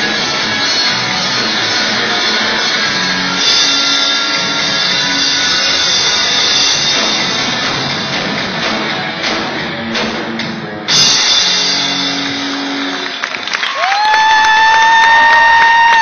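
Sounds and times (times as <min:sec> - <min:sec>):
rock band playing: 0:00.0 - 0:16.0
people clapping: 0:12.0 - 0:16.0.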